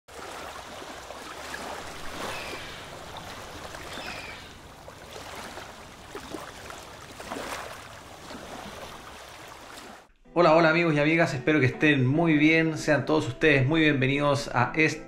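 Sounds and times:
sea waves washing: 0:00.1 - 0:10.1.

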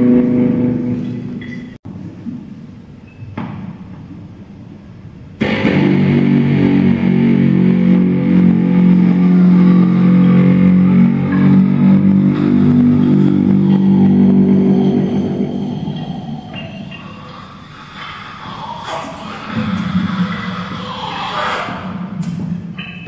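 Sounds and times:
electric guitar droning chord: 0:00.0 - 0:01.4, 0:05.4 - 0:17.2
faint electric guitar tone: 0:05.4 - 0:17.3.

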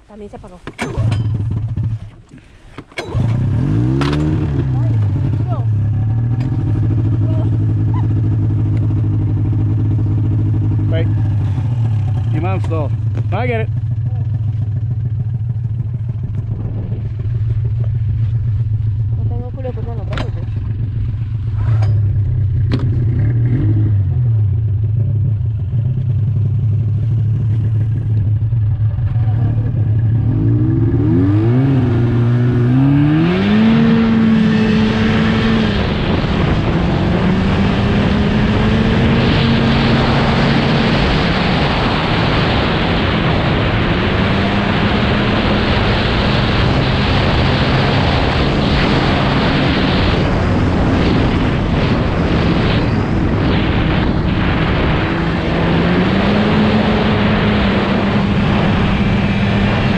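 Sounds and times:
snowmobile engine revving: 0:03.0 - 0:14.4, 0:29.0 - 0:59.9
loud rushing noise: 0:33.2 - 0:59.9.

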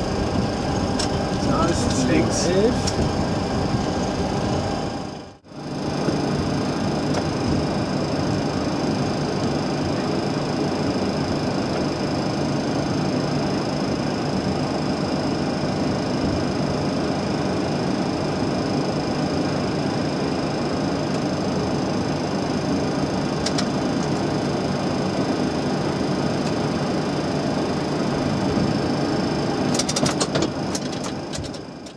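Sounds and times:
aircraft engine and air-conditioning hum: 0:00.0 - 0:31.9.

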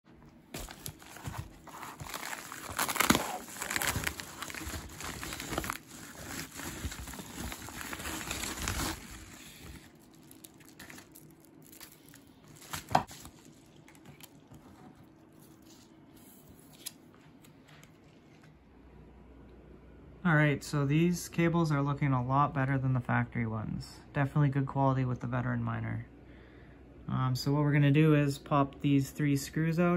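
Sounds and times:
plastic crinkling and rustling: 0:00.5 - 0:15.9.

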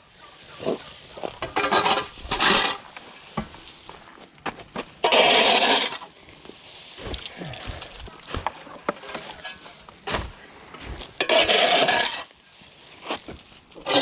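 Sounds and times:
garden tool scraping asphalt: 0:00.0 - 0:14.0
footsteps: 0:00.6 - 0:13.6.

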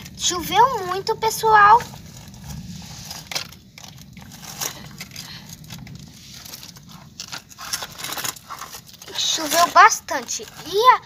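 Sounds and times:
low rumble: 0:00.0 - 0:09.3
toy scraping over gritty ground: 0:00.0 - 0:11.0.

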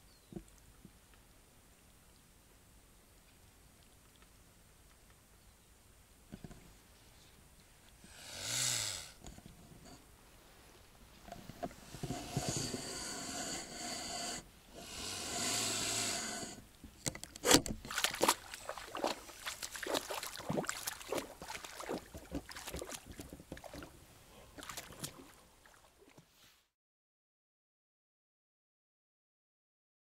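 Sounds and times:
long hiss-like noises: 0:00.0 - 0:17.6
swan splashing in water: 0:17.4 - 0:26.3.

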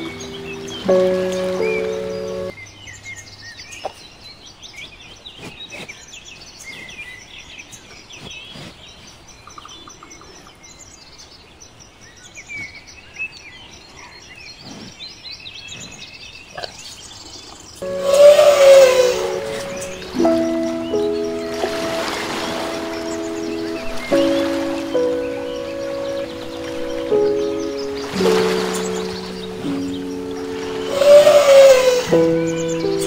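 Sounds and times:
small birds chirping: 0:00.0 - 0:33.0.

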